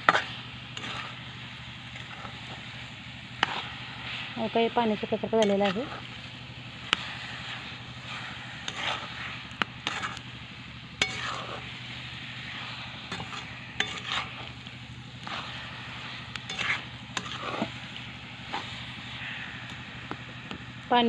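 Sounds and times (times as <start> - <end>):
spoon scraping metal pan: 0.0 - 1.2, 3.4 - 3.8, 5.3 - 6.2, 6.9 - 10.3, 11.0 - 14.6, 15.2 - 19.8
faint sizzle: 0.0 - 21.0.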